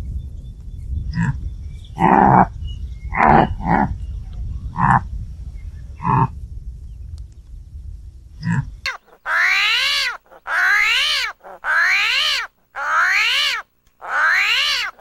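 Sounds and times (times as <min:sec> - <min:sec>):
steady low rumble: 0:00.0 - 0:08.9
springbok calls: 0:08.9 - 0:15.0.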